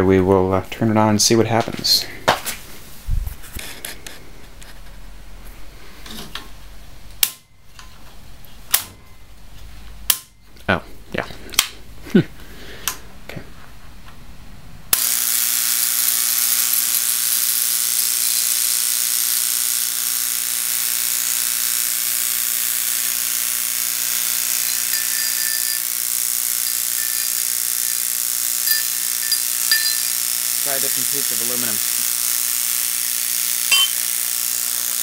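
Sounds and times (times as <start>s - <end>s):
loud electromagnet mains buzz: 14.9s - 35.0s.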